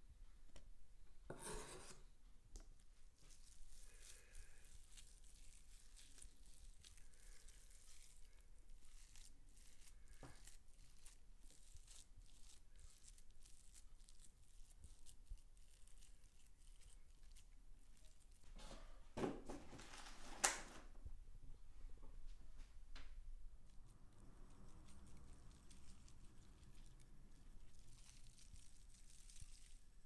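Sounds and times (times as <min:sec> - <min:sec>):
minced meat tearing and squishing: 0:03.1 - 0:18.4, 0:23.7 - 0:30.0.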